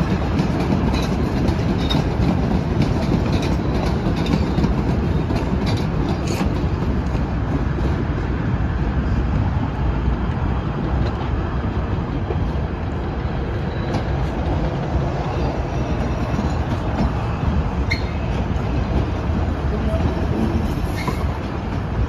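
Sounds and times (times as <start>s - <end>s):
train wheels rumbling on rails: 0.0s - 22.0s
faint wheel squeal: 17.8s - 18.5s, 19.9s - 21.4s.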